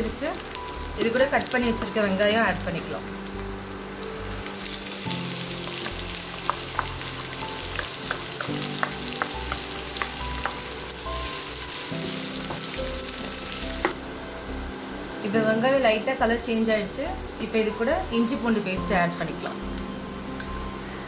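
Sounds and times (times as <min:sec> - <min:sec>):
oil sizzling in a pan: 0:00.0 - 0:14.1
spatula stirring with crackles: 0:00.2 - 0:14.0.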